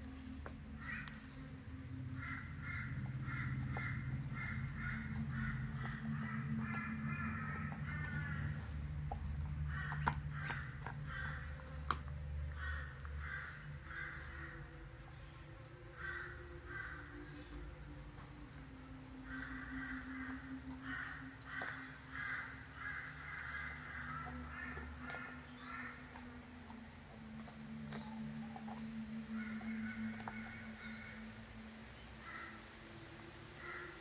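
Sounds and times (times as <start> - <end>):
bird harsh cawing calls: 0.1 - 34.0
dog gnawing a bone: 2.1 - 13.8, 19.4 - 30.9.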